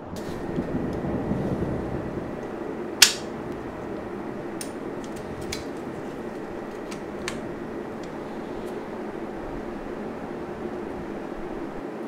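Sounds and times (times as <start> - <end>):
steady low hum: 0.0 - 12.0
plastic snap: 3.0 - 3.3.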